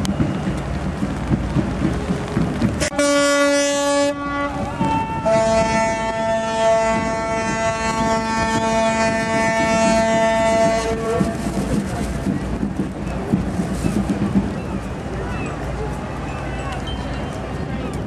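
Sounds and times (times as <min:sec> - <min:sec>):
ship horn blasts: 0:02.8 - 0:11.8.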